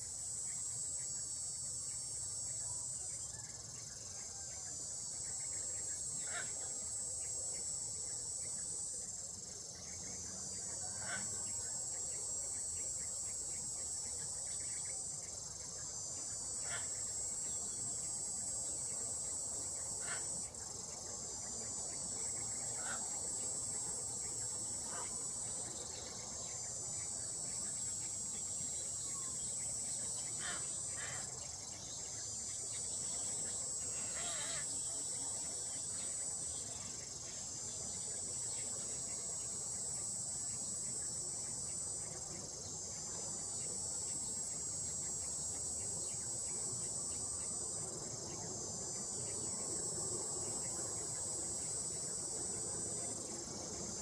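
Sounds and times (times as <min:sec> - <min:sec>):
shrill insect chorus: 0:00.0 - 0:54.0.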